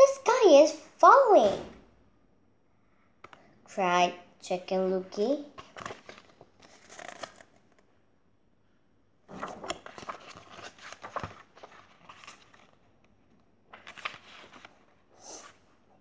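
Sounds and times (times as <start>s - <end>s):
book pages rustling: 5.5s - 7.9s, 9.3s - 15.9s.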